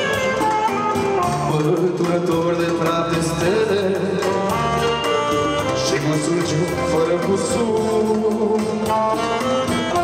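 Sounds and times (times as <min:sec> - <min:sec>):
saxophone playing: 0:00.0 - 0:01.8, 0:04.2 - 0:07.0, 0:08.8 - 0:10.0
keyboard backing with beat: 0:00.0 - 0:10.0
man singing into a microphone: 0:01.2 - 0:10.0.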